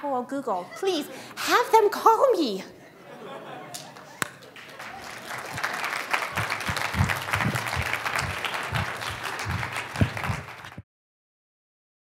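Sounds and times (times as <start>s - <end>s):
audience applauding: 3.9s - 10.8s.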